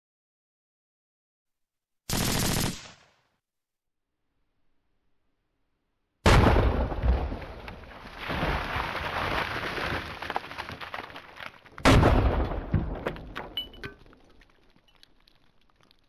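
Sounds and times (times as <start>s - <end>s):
shotgun blasts: 6.2s - 7.3s, 11.8s - 13.0s.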